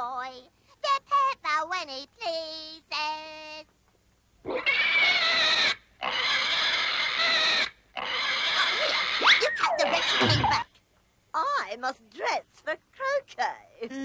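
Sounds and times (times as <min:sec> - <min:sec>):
cartoon piglet crying: 0:04.5 - 0:10.7.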